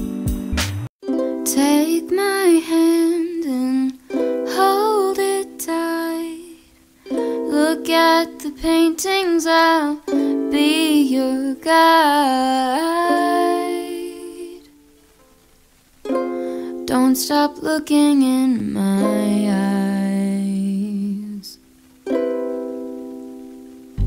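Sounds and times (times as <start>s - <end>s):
ukulele song: 0.0s - 24.0s
person singing: 1.0s - 14.8s, 16.1s - 21.6s.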